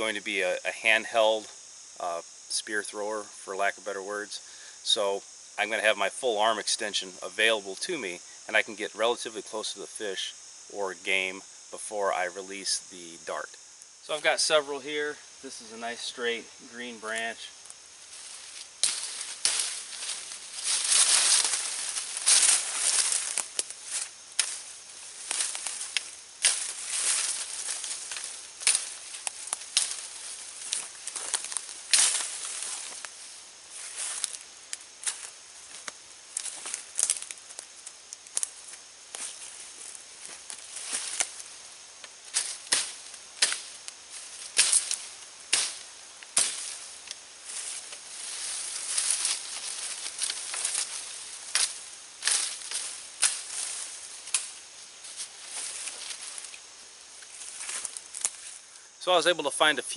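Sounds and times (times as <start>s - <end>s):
leaves and twigs rustling: 0.0s - 59.8s
machete chopping sapling: 44.5s - 46.8s.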